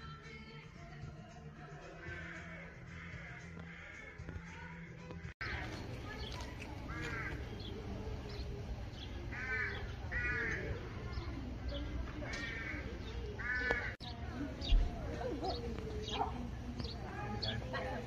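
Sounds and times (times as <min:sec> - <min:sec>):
crows cawing: 0:01.9 - 0:04.4, 0:06.8 - 0:07.7, 0:09.3 - 0:10.9, 0:12.2 - 0:14.1.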